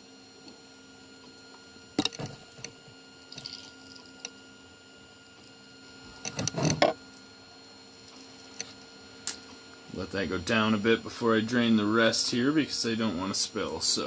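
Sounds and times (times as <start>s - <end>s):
faint electrical hum: 0.0s - 14.0s
knocking and rubbing: 6.3s - 7.0s.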